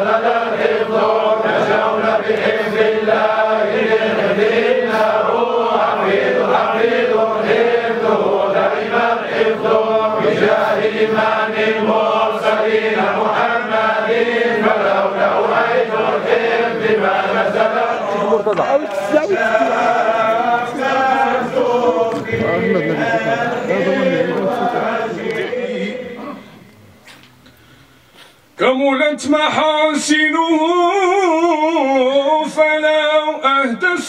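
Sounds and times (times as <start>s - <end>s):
men chanting together: 0.0s - 26.4s.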